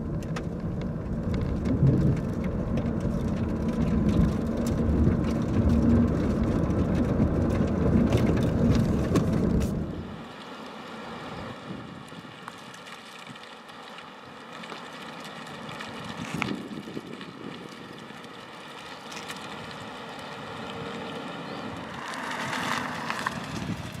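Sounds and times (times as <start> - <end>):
wind on the microphone: 0.0 - 10.1, 16.0 - 17.8, 23.2 - 24.0
tyre and road noise: 0.0 - 24.0.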